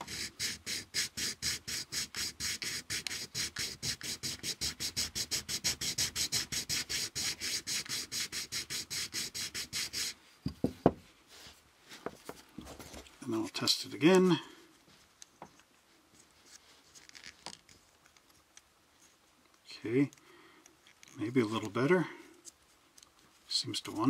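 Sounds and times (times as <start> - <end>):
plastic scratching on sandpaper: 0.0 - 10.2.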